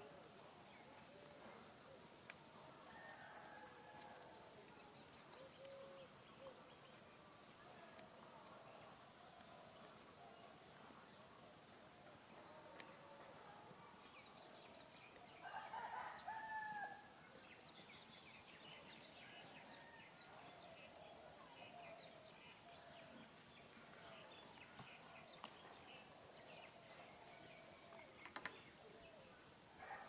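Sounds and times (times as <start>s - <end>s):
rooster crowing faintly: 2.7s - 4.6s.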